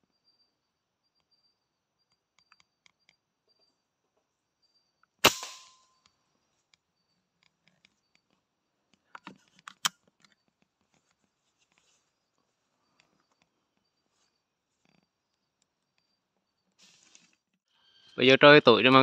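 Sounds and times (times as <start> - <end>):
air rifle shot: 5.2 - 5.8
sharp snap: 5.2 - 5.8.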